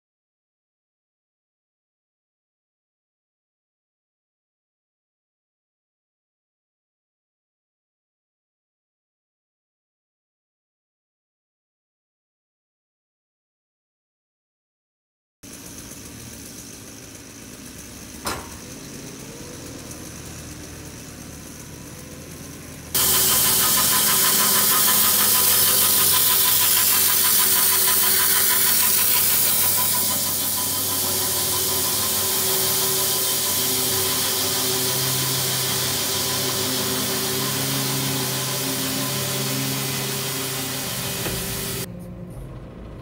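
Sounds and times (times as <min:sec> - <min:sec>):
sawmill cutting through log: 0:15.5 - 0:41.9
loader engine running: 0:15.5 - 0:43.0
hum: 0:21.5 - 0:43.0.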